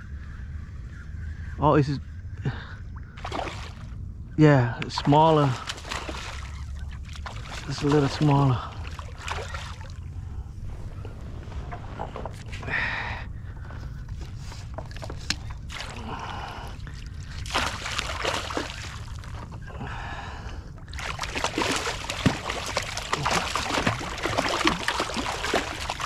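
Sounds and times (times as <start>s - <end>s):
fish splashing in water: 3.2s - 3.9s, 5.5s - 10.0s, 15.0s - 19.6s, 20.8s - 26.0s.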